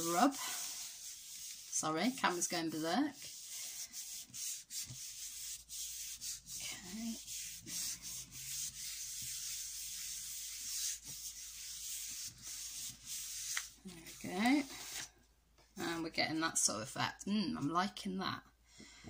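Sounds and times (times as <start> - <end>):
palms swishing on card: 3.2 - 15.1.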